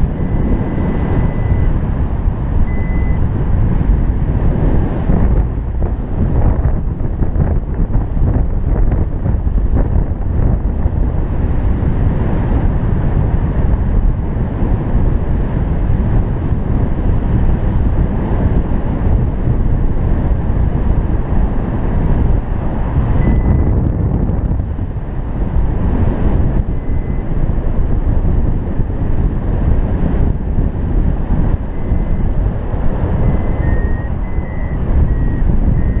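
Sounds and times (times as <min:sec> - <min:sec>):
short high beeps: 0:00.0 - 0:01.8, 0:02.7 - 0:03.2, 0:23.2 - 0:23.8, 0:26.7 - 0:27.2, 0:31.8 - 0:32.3, 0:33.2 - 0:36.0
wind noise on microphone: 0:00.0 - 0:36.0.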